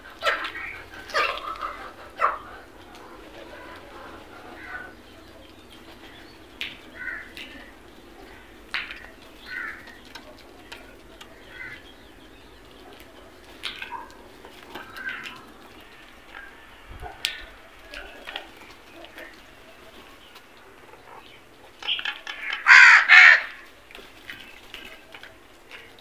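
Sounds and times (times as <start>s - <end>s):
crows calling: 0.0s - 12.2s, 13.7s - 19.4s, 20.9s - 23.7s
faint background noise: 0.0s - 26.0s.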